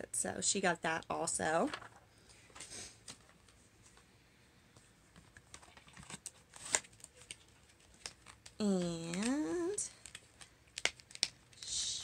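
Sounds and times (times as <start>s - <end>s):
clicks and taps of packaging: 5.2s - 11.4s.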